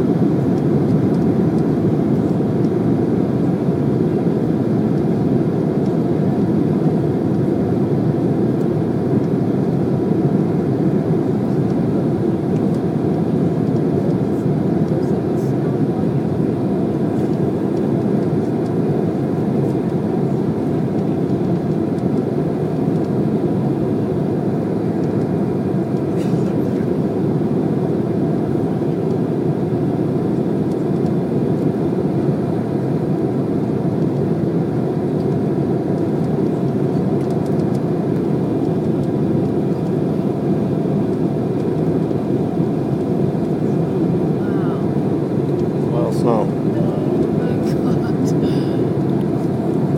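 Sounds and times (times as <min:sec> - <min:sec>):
airliner engine noise: 0:00.0 - 0:49.9
cabin airflow noise: 0:10.8 - 0:49.9.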